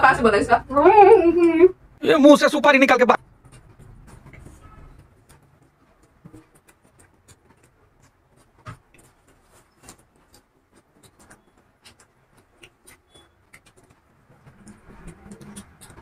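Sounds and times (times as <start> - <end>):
chewing and handling food: 3.3 - 16.0.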